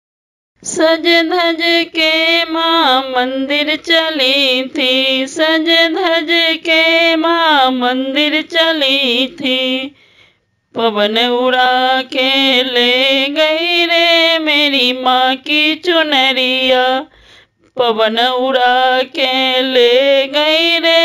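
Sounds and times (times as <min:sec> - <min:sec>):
woman singing devotional song: 0:00.6 - 0:10.1, 0:10.7 - 0:21.0
singer breathing: 0:09.9 - 0:10.6, 0:17.1 - 0:17.6.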